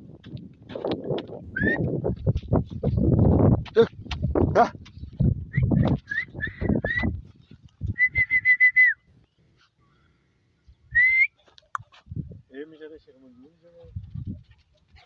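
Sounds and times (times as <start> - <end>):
person whistling: 1.6 - 1.9, 5.5 - 7.2, 8.0 - 9.1, 10.9 - 11.4.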